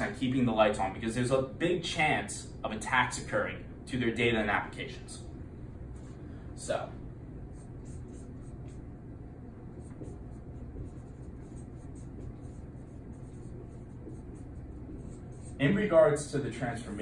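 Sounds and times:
low room hum: 0.0 - 17.0
marker scratching on whiteboard: 7.5 - 17.0.

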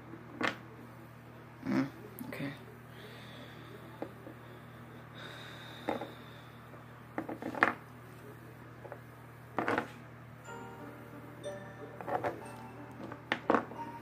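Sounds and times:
low hum: 10.4 - 14.0
music: 10.4 - 14.0.

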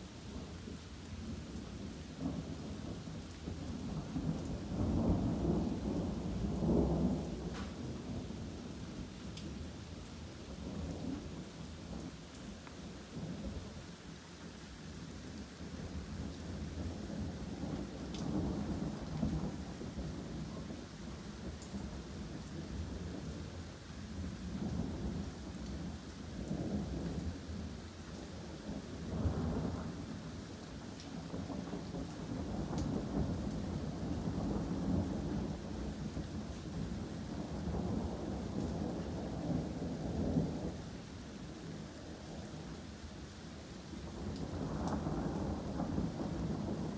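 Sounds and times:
rain falling on trees: 0.0 - 46.9
rolling thunder: 2.2 - 9.0, 28.4 - 30.2, 31.2 - 40.9, 44.0 - 46.9.

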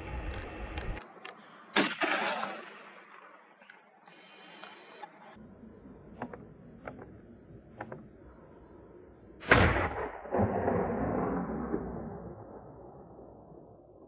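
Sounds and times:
faint clicks: 0.1 - 1.6, 3.6 - 5.4
gunshot echoing: 1.7 - 3.3, 9.4 - 12.0.

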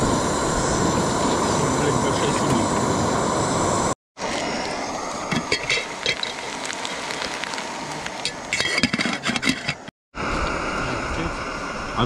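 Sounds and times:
metal cookware clinking: 8.5 - 9.8.

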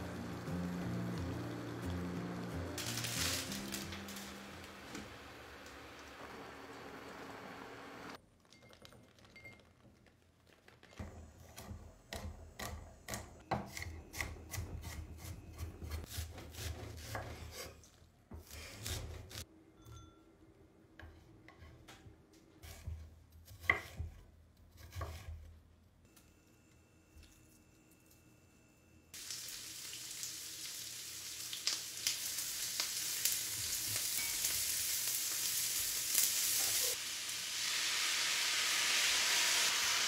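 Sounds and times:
knife slicing vegetables on board: 11.5 - 19.4, 22.6 - 25.5.

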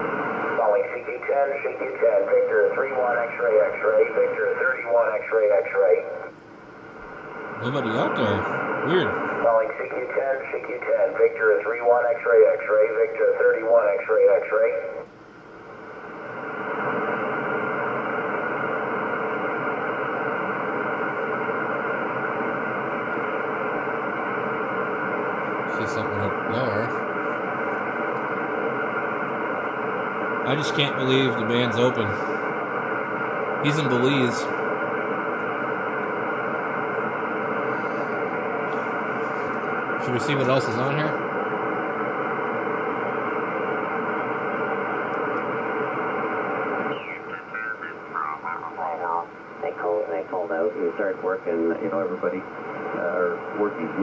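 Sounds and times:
radio static hiss: 0.0 - 15.1, 15.7 - 54.0.

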